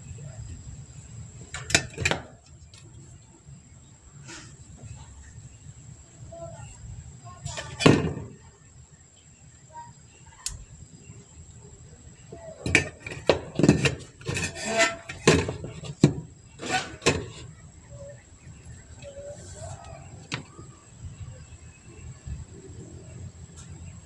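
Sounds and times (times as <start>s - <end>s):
parts clattering on workbench: 12.6s - 17.5s.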